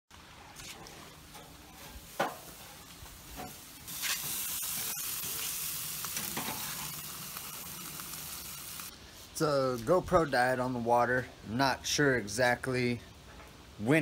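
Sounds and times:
burger patties sizzling on grill: 0.2 - 10.4.

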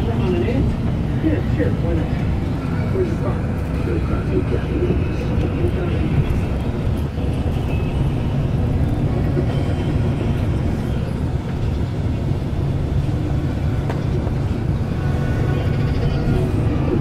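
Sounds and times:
bus engine and tyre drone: 0.0 - 17.0.

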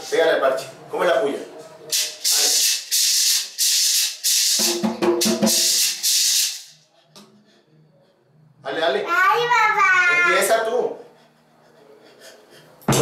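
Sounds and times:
maraca shaking: 1.9 - 6.8.

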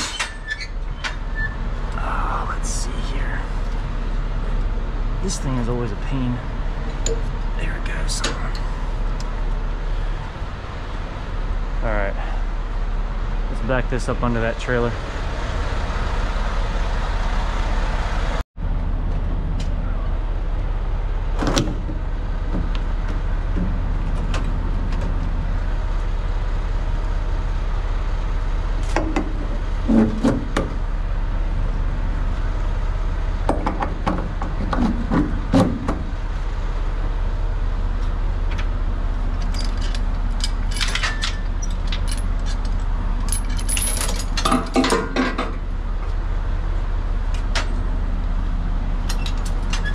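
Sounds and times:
diesel truck engine idling: 0.3 - 49.9
metallic clanks and chain rattles: 39.3 - 45.6, 49.0 - 49.9.

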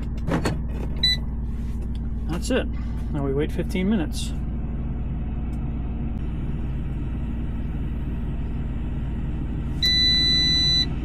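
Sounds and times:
low rumble: 0.0 - 11.0
high electronic timer beep: 9.8 - 10.9.

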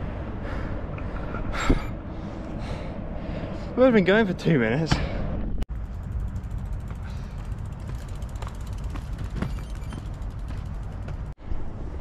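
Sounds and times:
bicycle freewheel ticking: 5.7 - 11.3
bicycle creaking: 5.7 - 11.4
footsteps on asphalt: 6.3 - 11.4.

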